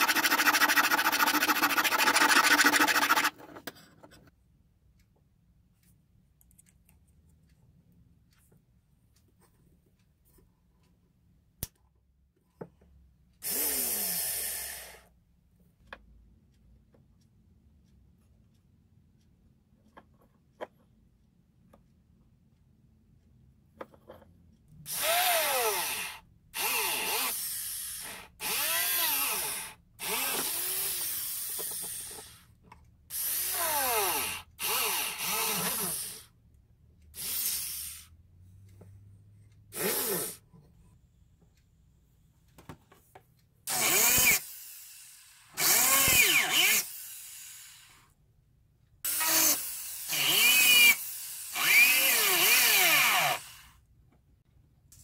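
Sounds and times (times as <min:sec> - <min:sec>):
rotary handpiece whining: 0:00.0 - 0:03.5.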